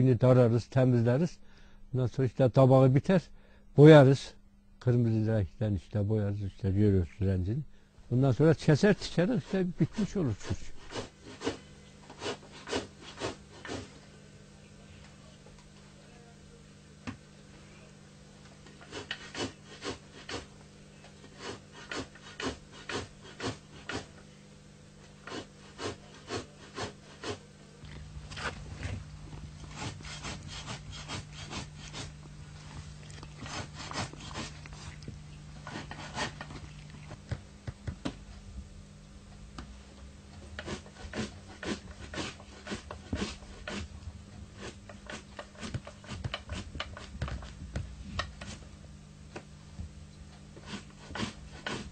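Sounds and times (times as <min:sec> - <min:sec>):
hand tool rasping sheepskin: 0:09.0 - 0:13.9, 0:18.8 - 0:20.5, 0:21.2 - 0:24.1, 0:25.2 - 0:27.4, 0:29.6 - 0:32.3, 0:33.0 - 0:35.0, 0:35.6 - 0:37.3, 0:40.6 - 0:43.9, 0:44.6 - 0:47.6, 0:50.6 - 0:51.9
low hum: 0:27.4 - 0:40.4.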